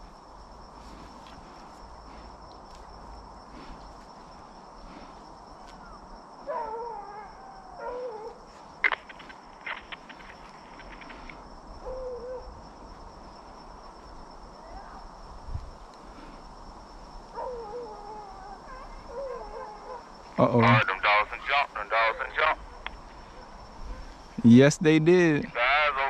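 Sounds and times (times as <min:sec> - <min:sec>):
high insect drone: 0:00.0 - 0:26.0
faint ticks: 0:02.4 - 0:02.9, 0:08.8 - 0:11.4, 0:15.6 - 0:16.1
distant hounds baying: 0:05.8 - 0:09.3, 0:10.9 - 0:13.0, 0:16.9 - 0:24.4.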